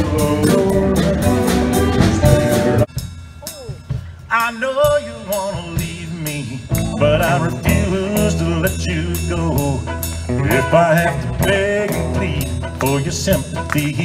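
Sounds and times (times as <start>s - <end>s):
steady bass line: 0.0s - 2.9s, 5.0s - 14.0s
country band with fiddle and guitars: 0.0s - 3.1s, 3.9s - 14.0s
sliding wavering lead melody: 6.7s - 10.8s.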